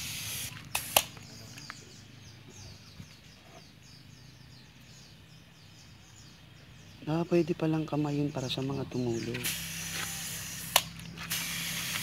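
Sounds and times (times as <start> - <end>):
birds chirping softly: 0.0 - 12.0
sharp clicks: 0.5 - 1.8, 9.3 - 12.0.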